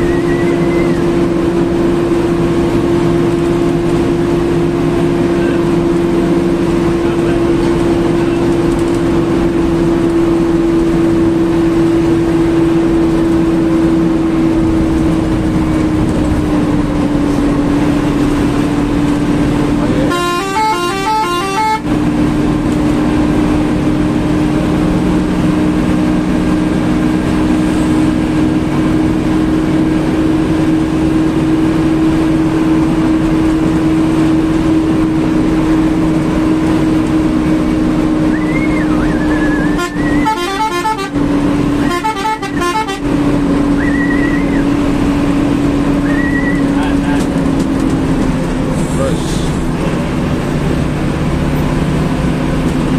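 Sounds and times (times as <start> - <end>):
bus engine and road noise: 0.0 - 52.9
warbling horn: 20.0 - 21.9, 38.3 - 43.2.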